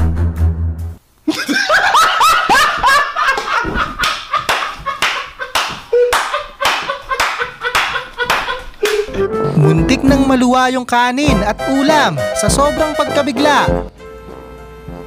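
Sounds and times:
background music: 0:09.1 - 0:15.0.

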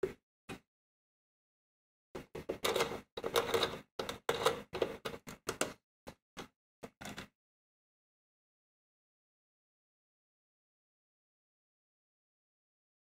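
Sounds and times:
lanterns clicking and scraping: 0:02.2 - 0:05.7.

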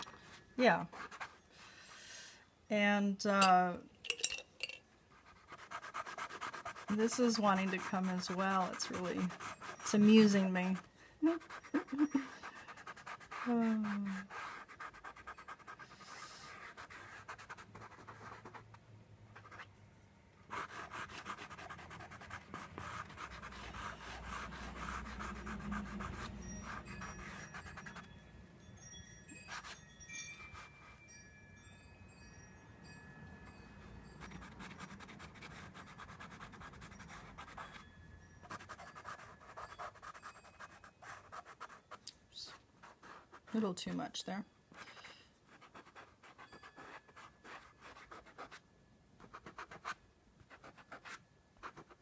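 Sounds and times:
pencil scratching on paper: 0:00.0 - 0:01.4, 0:05.1 - 0:18.7, 0:20.5 - 0:28.1, 0:34.2 - 0:37.8, 0:38.4 - 0:44.0, 0:44.8 - 0:48.6, 0:49.2 - 0:52.0.

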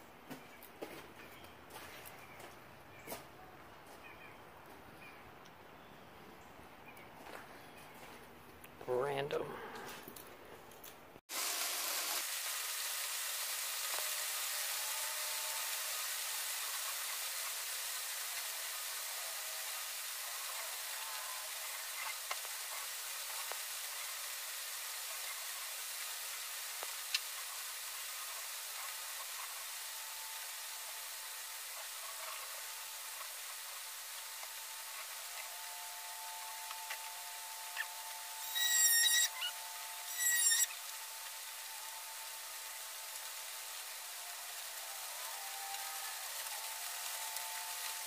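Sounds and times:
steady hiss: 0:11.3 - 0:48.0.

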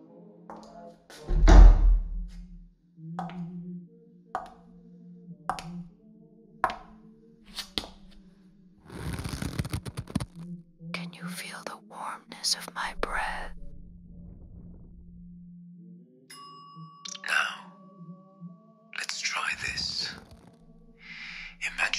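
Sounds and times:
heavy deep thud: 0:01.3 - 0:02.6.

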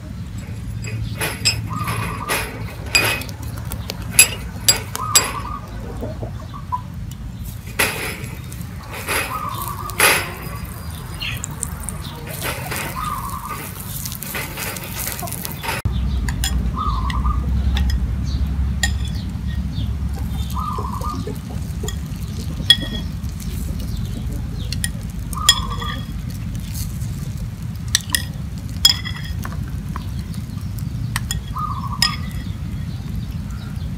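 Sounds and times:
spoon clinking ceramic bowls: 0:00.4 - 0:05.6, 0:07.7 - 0:17.2, 0:17.8 - 0:18.0, 0:18.8 - 0:26.4, 0:27.8 - 0:30.4, 0:31.2 - 0:32.6
spoon beating eggs in bowl: 0:07.8 - 0:16.6, 0:21.4 - 0:24.0.

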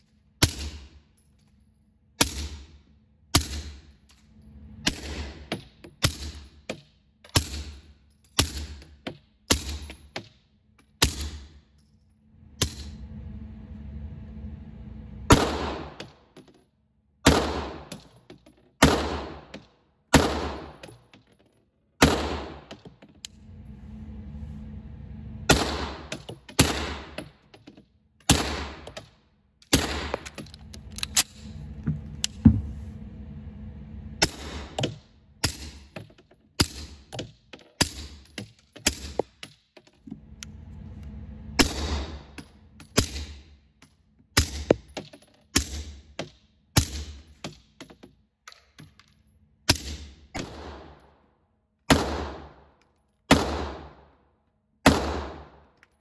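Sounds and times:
steady low hum: 0:00.0 - 0:55.8.

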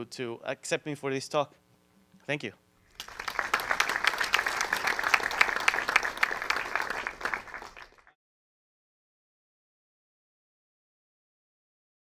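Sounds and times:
audience applauding: 0:02.9 - 0:08.2.

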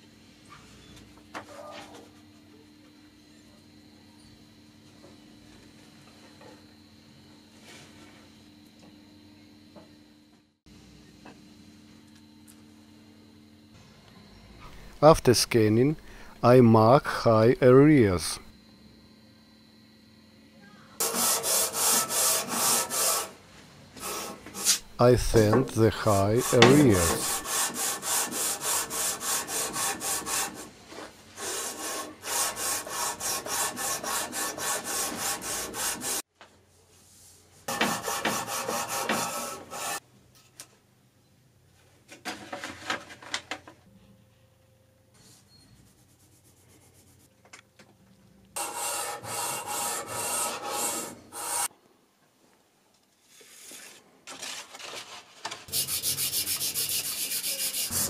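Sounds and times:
sandpaper rubbing on metal: 0:21.0 - 0:23.4, 0:24.0 - 0:30.8, 0:31.4 - 0:36.2, 0:37.7 - 0:40.0, 0:48.6 - 0:51.7, 0:55.7 - 0:58.0.

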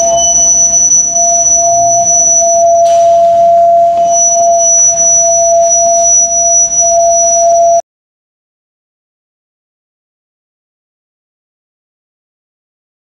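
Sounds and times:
electronic drone tone: 0:00.0 - 0:07.8
thin high whistle: 0:00.0 - 0:07.8.

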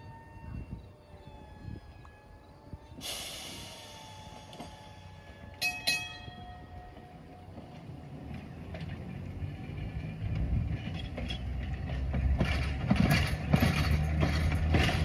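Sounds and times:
hiss: 0:03.0 - 0:05.3
sharp ringing metal strikes: 0:05.6 - 0:06.8.

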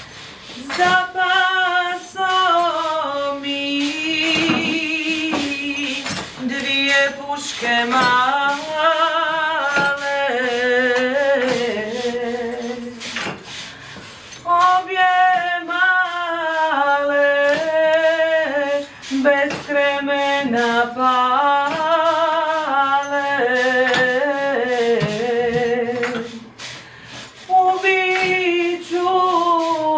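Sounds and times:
person singing with vibrato: 0:00.4 - 0:13.3, 0:14.3 - 0:26.6, 0:27.3 - 0:29.9
percussion strikes: 0:02.2 - 0:13.4.

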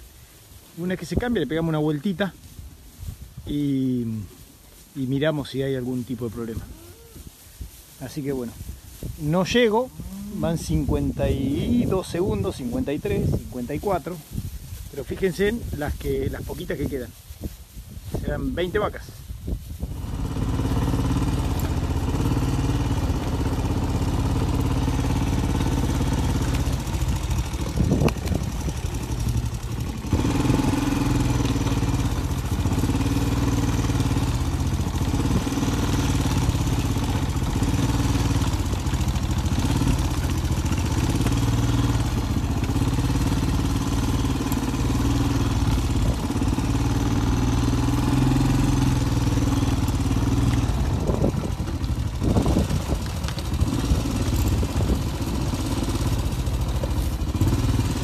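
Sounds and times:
quad bike engine running: 0:09.8 - 0:14.2, 0:19.9 - 0:58.0.

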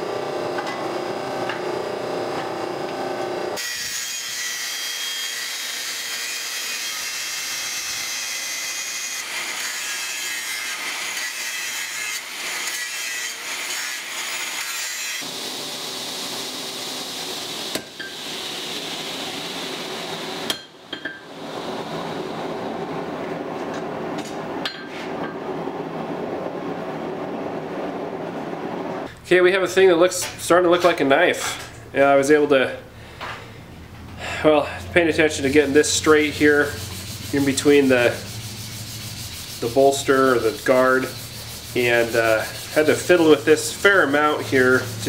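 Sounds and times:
hammer strikes on hot steel: 0:20.5 - 0:21.3, 0:24.2 - 0:25.4
angle grinder grinding steel: 0:35.1 - 0:45.0.

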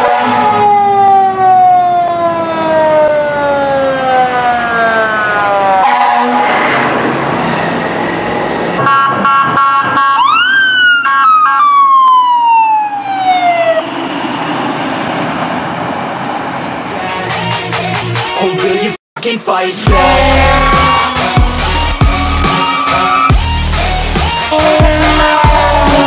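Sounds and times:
horn-like siren tones: 0:00.0 - 0:07.0, 0:08.8 - 0:14.1, 0:19.9 - 0:26.0
siren wailing: 0:00.0 - 0:07.3, 0:08.2 - 0:15.7, 0:19.9 - 0:26.0
truck engine and road noise: 0:00.0 - 0:18.9, 0:19.5 - 0:26.0.

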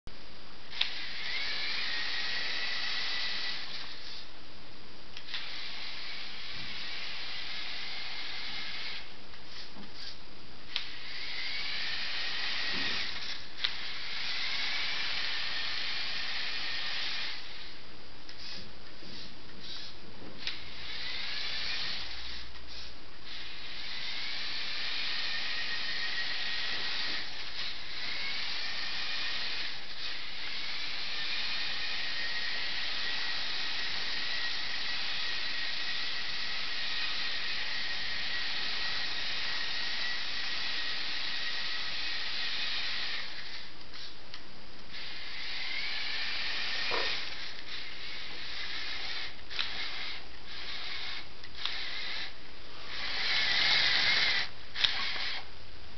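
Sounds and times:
toy truck motor whirring: 0:00.7 - 0:04.3, 0:05.2 - 0:44.2, 0:44.9 - 0:55.5.

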